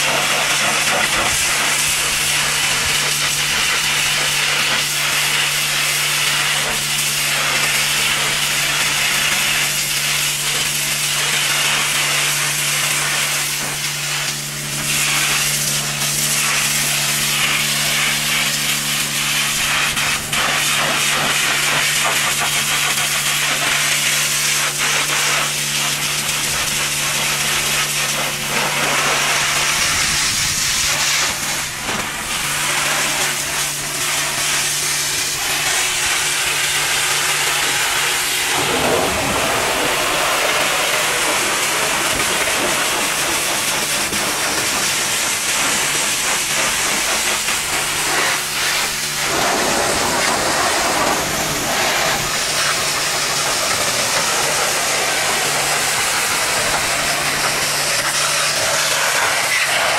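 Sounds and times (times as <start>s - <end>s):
pressure washer jet hissing: 0.0s - 59.9s
steady low hum: 0.0s - 59.9s.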